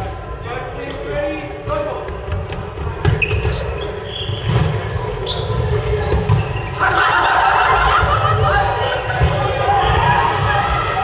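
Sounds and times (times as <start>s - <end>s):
people shouting: 6.8s - 11.0s.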